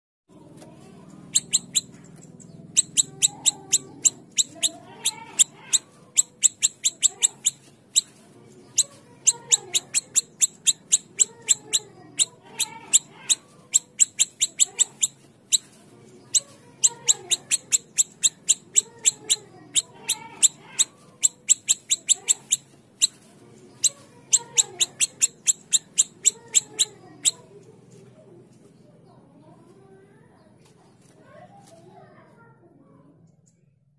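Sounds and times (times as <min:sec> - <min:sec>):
songbird high sharp notes: 0:01.3 - 0:02.0, 0:02.7 - 0:07.6.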